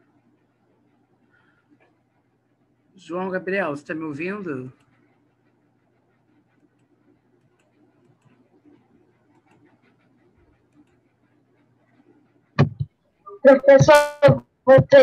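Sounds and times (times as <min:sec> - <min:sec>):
faint irregular ticks: 0:06.4 - 0:10.0.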